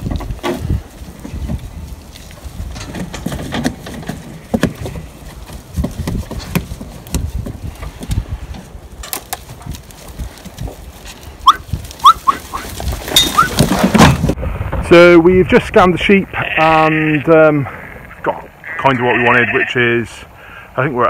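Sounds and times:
knocks and clatters in pen: 0:00.0 - 0:09.8, 0:12.6 - 0:14.4.

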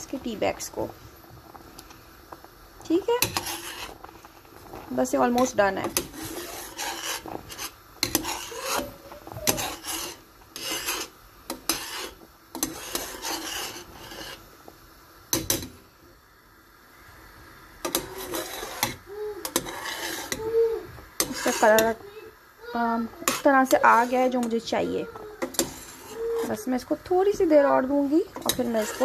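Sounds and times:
metal spoon scraping steel pot: 0:03.0 - 0:14.4, 0:17.8 - 0:20.4, 0:21.2 - 0:22.0, 0:23.1 - 0:29.0.

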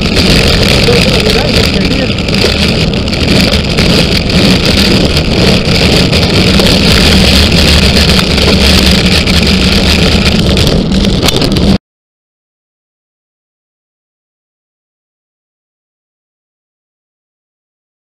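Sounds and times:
low rumble: 0:00.0 - 0:11.8
rushing wind and road noise: 0:00.0 - 0:11.8.

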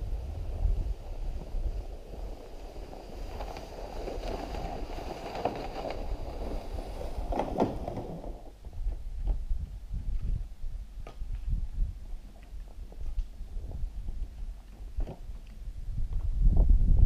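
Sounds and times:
sled scraping over snow: 0:00.0 - 0:10.4, 0:11.4 - 0:15.8
knocks from firewood load: 0:07.2 - 0:08.8.

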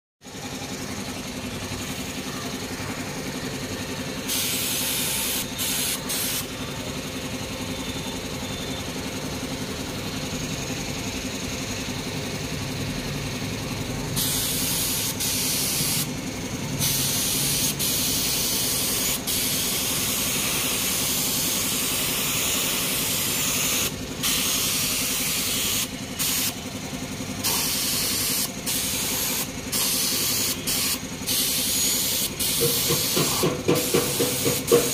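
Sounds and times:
air compressor humming: 0:00.2 - 0:34.9
paint spray gun hissing: 0:04.2 - 0:06.5, 0:14.2 - 0:16.1, 0:16.8 - 0:26.6, 0:27.4 - 0:34.9.

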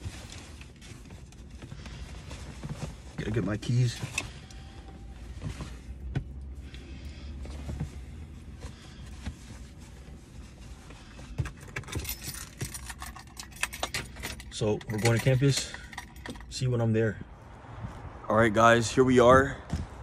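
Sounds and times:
keys clicking and knocking: 0:11.4 - 0:16.5
keys jangling and clinking: 0:11.5 - 0:16.5.

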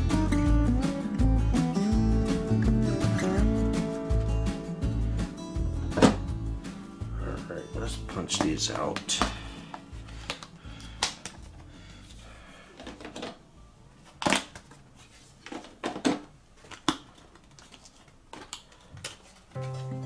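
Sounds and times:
cardboard pieces snapping out: 0:10.2 - 0:11.4, 0:14.2 - 0:14.8
card crinkling: 0:16.6 - 0:20.0.

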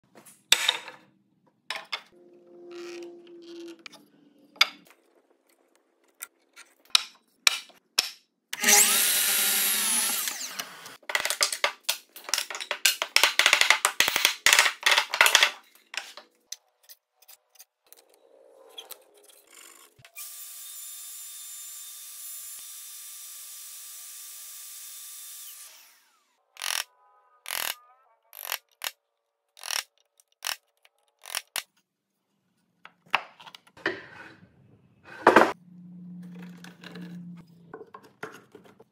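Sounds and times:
power tool running: 0:08.6 - 0:11.0, 0:20.1 - 0:26.8.

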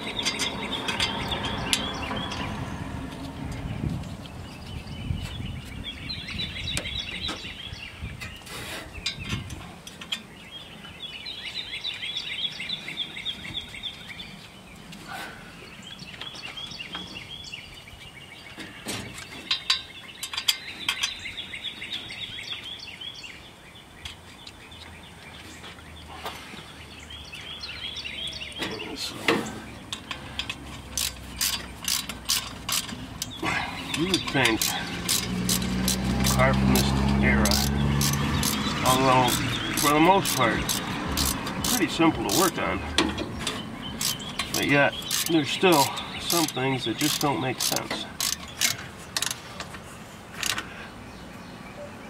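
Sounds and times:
songbird singing high trills: 0:04.4 - 0:09.4, 0:10.3 - 0:14.6, 0:26.7 - 0:29.8, 0:41.6 - 0:47.8
hand tools clicking on metal: 0:29.9 - 0:49.7.

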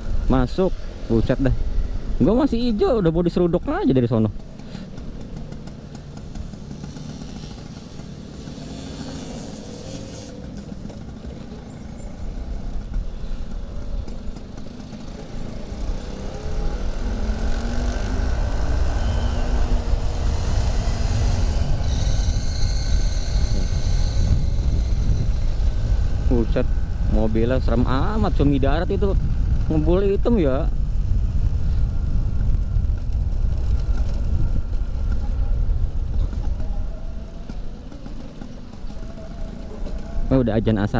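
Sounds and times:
scooter two-stroke engine running: 0:04.3 - 0:11.8
wind noise on microphone: 0:16.5 - 0:37.4.

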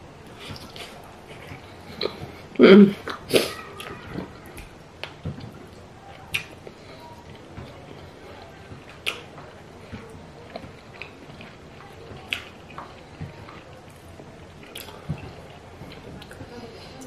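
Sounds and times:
wet chewing: 0:00.2 - 0:17.0
lip smacks: 0:03.0 - 0:11.6, 0:12.2 - 0:16.4.

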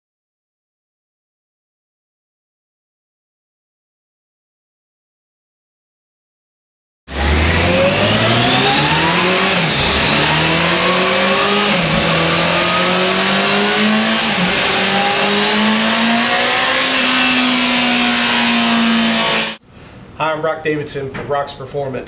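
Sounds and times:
motorcycle engine revving: 0:07.1 - 0:19.6.

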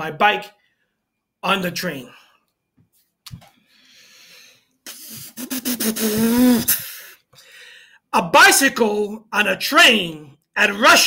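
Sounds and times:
faint breath: 0:03.5 - 0:05.2, 0:06.7 - 0:08.1
man's breathy wavering groan: 0:04.9 - 0:07.1.

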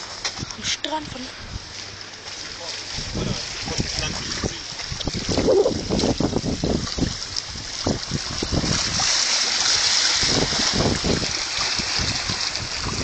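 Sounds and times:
lapping water: 0:00.0 - 0:13.0
wind buffeting microphone: 0:02.9 - 0:13.0.

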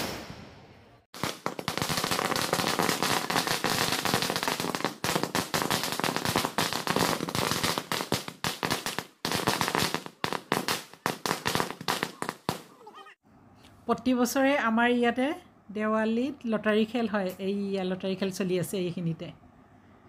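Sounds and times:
firecrackers banging rapidly: 0:01.2 - 0:12.8.

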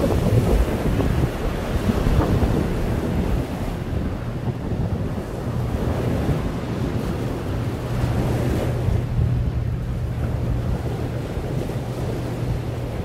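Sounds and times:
wake water rushing: 0:00.0 - 0:13.0
wind noise on microphone: 0:00.0 - 0:13.0.

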